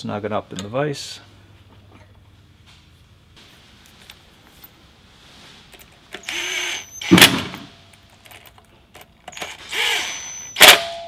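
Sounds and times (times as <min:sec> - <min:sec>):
cordless drill driving screws: 0:06.2 - 0:07.6, 0:09.3 - 0:10.8.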